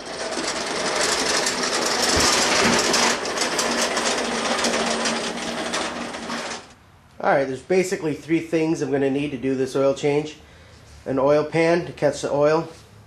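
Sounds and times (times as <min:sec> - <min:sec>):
snowblower engine clattering: 0:00.0 - 0:06.8.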